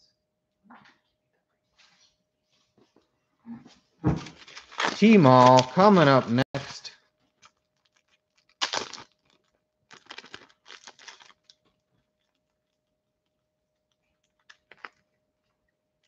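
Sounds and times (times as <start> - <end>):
clicking and crinkling handling noises: 4.2 - 6.1, 7.1 - 15.7.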